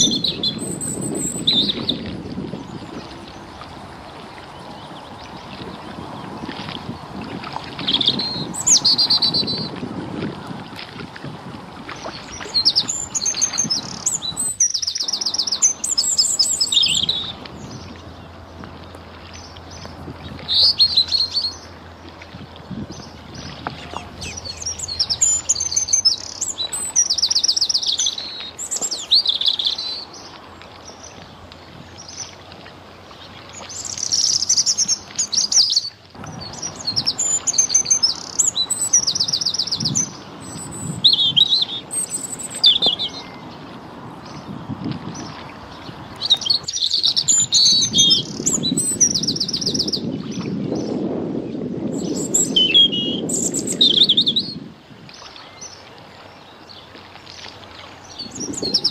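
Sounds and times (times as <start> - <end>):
songbird singing with trills: 0.0 - 3.6, 7.8 - 9.8, 12.1 - 18.6, 19.3 - 21.8, 22.6 - 31.3, 33.2 - 58.9
steady outdoor background noise: 0.0 - 50.1, 54.6 - 58.9.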